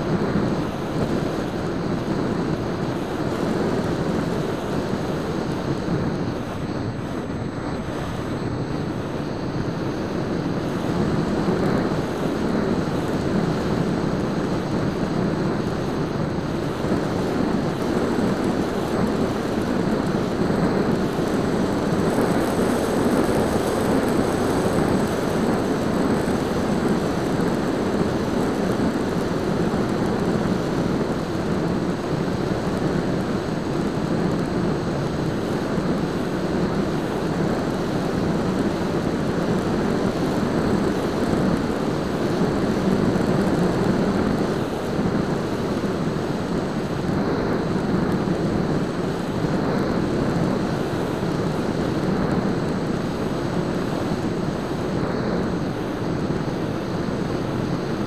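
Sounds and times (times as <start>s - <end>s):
airflow rushing: 0.0s - 31.5s
electric motor and propeller: 0.0s - 58.0s.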